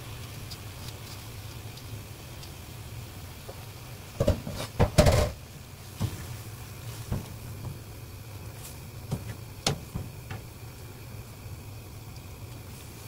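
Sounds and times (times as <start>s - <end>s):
low steady hum: 0.0s - 13.0s
metal skimmer knocking on pan: 4.2s - 5.4s.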